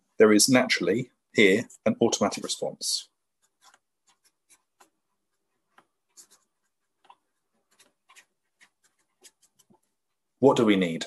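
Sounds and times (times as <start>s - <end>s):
marker scratching on paper: 3.3s - 10.2s.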